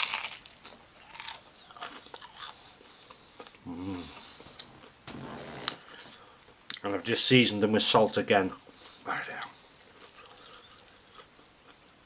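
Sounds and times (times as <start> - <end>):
crunchy chewing: 0.0 - 4.9, 9.8 - 11.9
person humming: 3.6 - 4.2.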